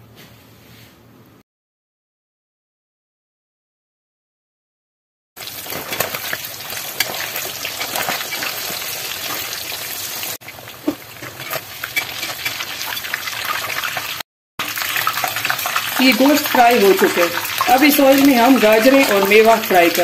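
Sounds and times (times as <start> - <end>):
meat deep-frying in oil: 5.4 - 20.0
slotted spoon clicking and scraping: 11.3 - 13.0.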